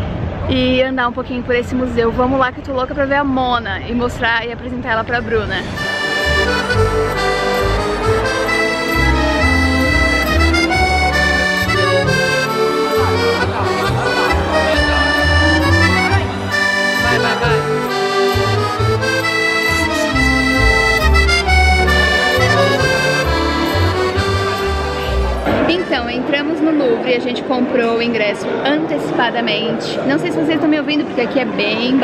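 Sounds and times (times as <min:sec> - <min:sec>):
accordion music with bass line: 0:05.6 - 0:26.4.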